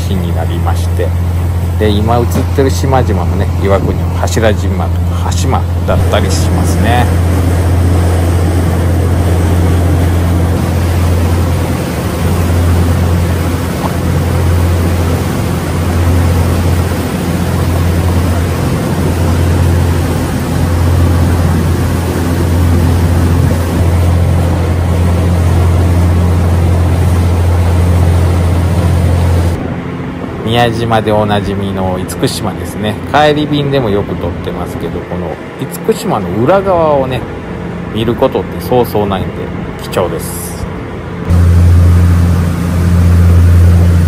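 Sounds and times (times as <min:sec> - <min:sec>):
ship engines droning: 0:00.0 - 0:44.0
wind rushing: 0:01.2 - 0:30.5.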